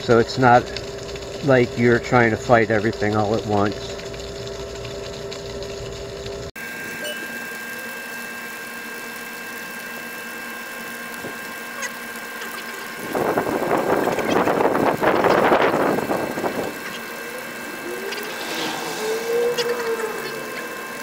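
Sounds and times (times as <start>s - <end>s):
electric pump whining: 0.0s - 21.0s
rushing noise: 16.2s - 21.0s.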